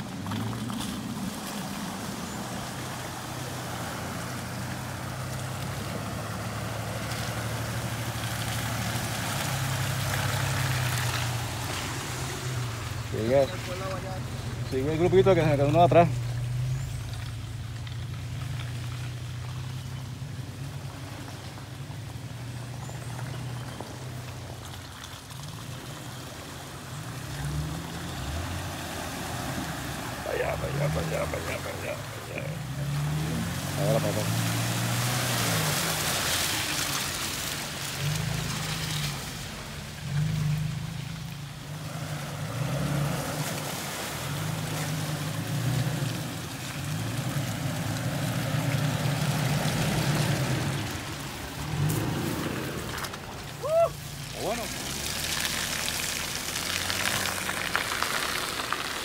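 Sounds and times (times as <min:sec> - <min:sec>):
off-road vehicle engine droning: 0:00.0 - 0:59.0
engine running at low revs: 0:27.0 - 0:36.1.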